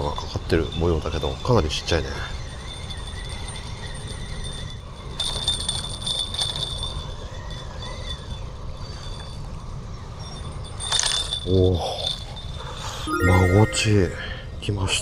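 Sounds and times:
spinning reel winding and rattling: 0:00.5 - 0:12.3.

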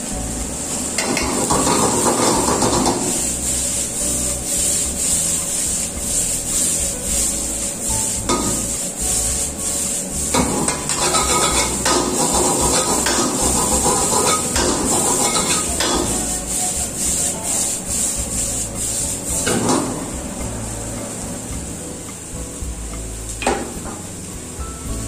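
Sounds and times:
steady hiss: 0:00.0 - 0:25.0
metal ladle scraping a wok: 0:00.8 - 0:20.0.

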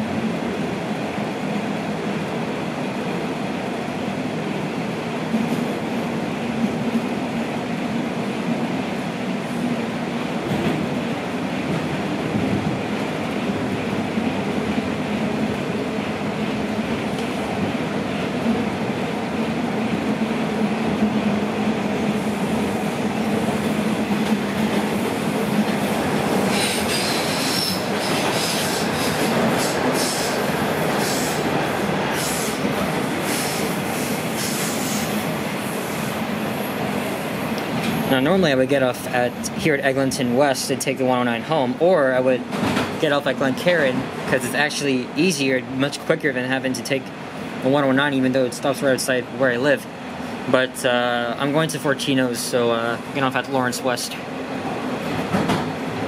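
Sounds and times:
train wheels rumbling on rail: 0:00.0 - 0:56.0
wheels squealing: 0:26.5 - 0:30.4.

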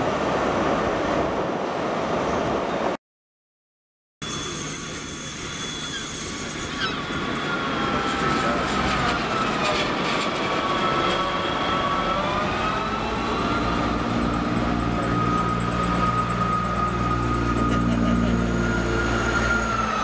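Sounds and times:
high brake squeal: 0:04.2 - 0:13.6
low diesel engine hum: 0:06.8 - 0:20.0.

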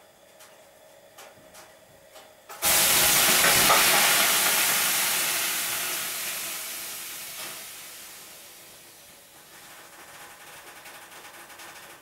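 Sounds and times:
loud hiss of steam: 0:02.6 - 0:09.3.

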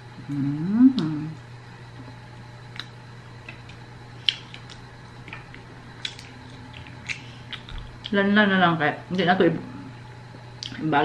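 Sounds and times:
steady low hum: 0:00.0 - 0:11.0
mouth chewing clicks and smacks: 0:06.0 - 0:08.1.

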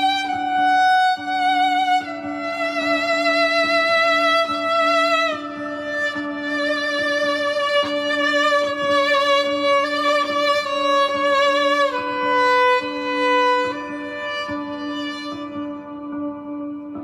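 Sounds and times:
bowed viola melody: 0:00.0 - 0:17.0.

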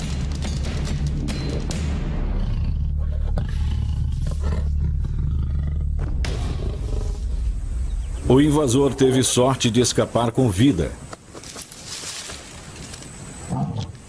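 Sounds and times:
lions growling: 0:01.2 - 0:07.4.

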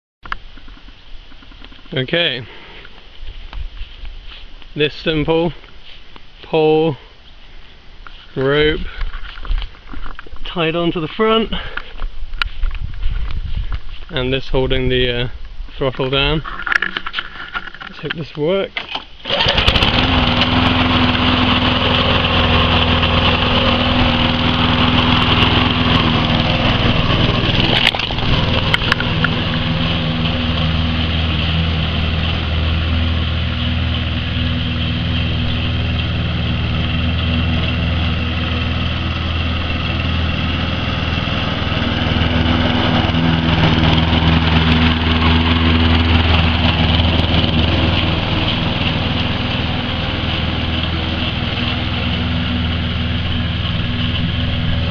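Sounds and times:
lawn mower engine running: 0:18.8 - 0:54.9.

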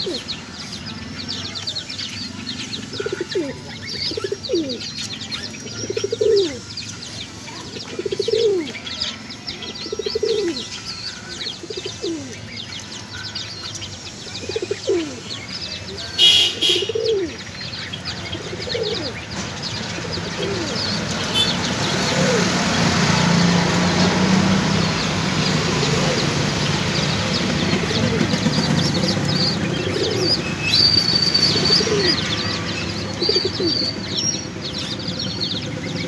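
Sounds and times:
pigeons cooing: 0:00.0 - 0:00.4, 0:02.8 - 0:06.7, 0:07.6 - 0:10.7, 0:11.4 - 0:12.6, 0:14.2 - 0:15.4, 0:16.0 - 0:36.0
small birds chirping: 0:00.0 - 0:36.0.

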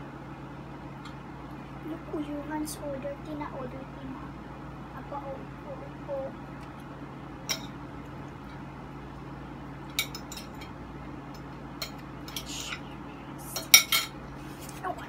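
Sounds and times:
cutlery clinking against plates: 0:07.5 - 0:07.8, 0:09.9 - 0:10.7, 0:11.8 - 0:12.8, 0:13.6 - 0:14.2.

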